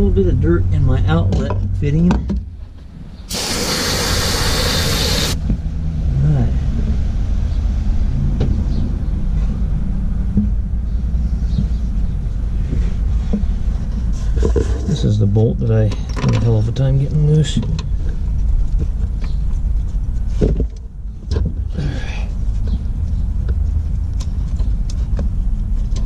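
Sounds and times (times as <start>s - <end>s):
loud hiss of spray: 3.3s - 5.4s.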